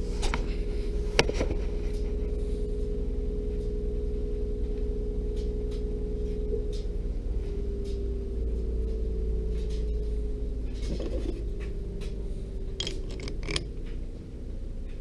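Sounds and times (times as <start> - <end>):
steady low hum: 0.0 - 15.0
metal scrape: 10.8 - 11.4, 12.8 - 13.7
sharp metallic clicks: 12.8 - 13.8.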